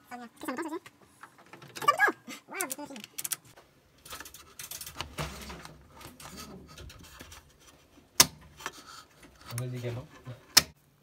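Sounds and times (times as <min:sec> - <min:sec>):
rotary switch turning: 0:08.2 - 0:09.7, 0:10.5 - 0:10.8.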